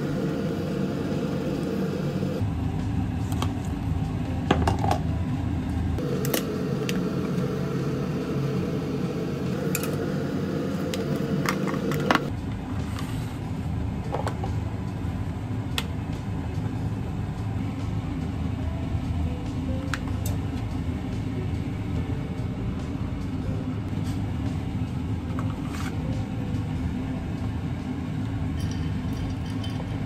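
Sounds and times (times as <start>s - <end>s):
steady low hum: 0.0s - 30.0s
glass containers clicking: 28.6s - 30.0s.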